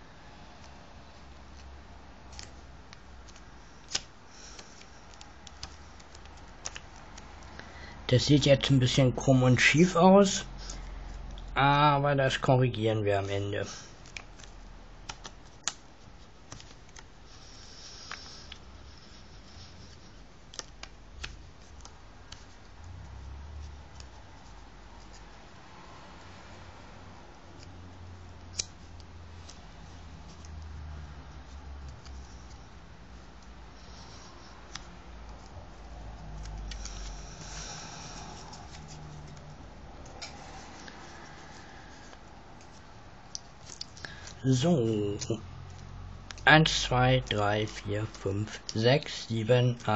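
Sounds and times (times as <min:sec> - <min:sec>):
soft paper rustle: 0:00.2 - 0:49.9
paper crinkling and clicking: 0:01.4 - 0:07.7, 0:13.8 - 0:22.9, 0:27.4 - 0:31.0, 0:31.8 - 0:48.8
paper rustling and crinkling: 0:13.6 - 0:22.8.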